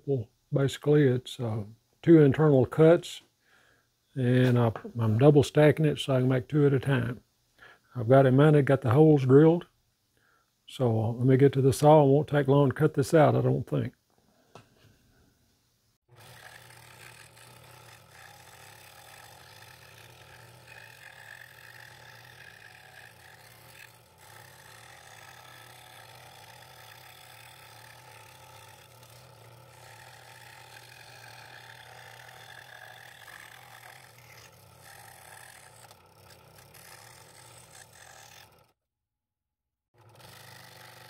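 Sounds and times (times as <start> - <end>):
scroll saw cutting wood: 16.1 - 38.8, 40.0 - 41.0.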